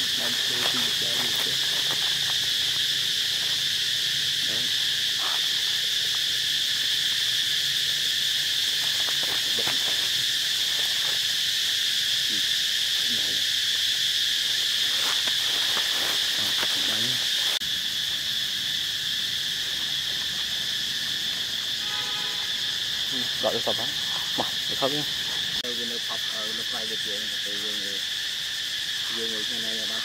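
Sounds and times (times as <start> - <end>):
insect chorus droning: 0.0 - 30.0.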